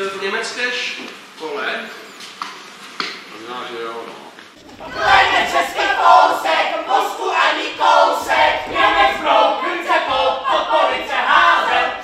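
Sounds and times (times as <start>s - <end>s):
group of voices clamouring: 4.6s - 12.0s.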